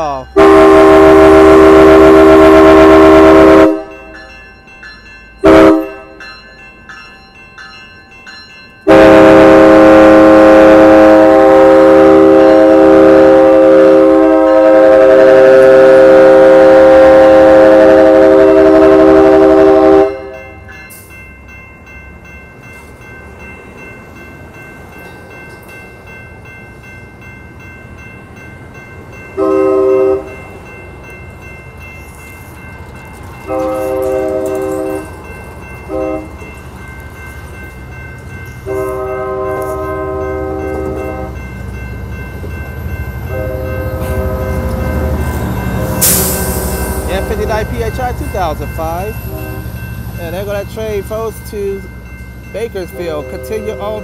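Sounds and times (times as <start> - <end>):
train cars rumbling past: 0.0 - 54.0
train air horn: 0.4 - 3.9, 5.4 - 6.1, 8.9 - 20.5, 29.4 - 30.3, 33.5 - 35.0, 35.9 - 36.3, 38.7 - 41.3, 43.3 - 44.8, 49.2 - 49.7.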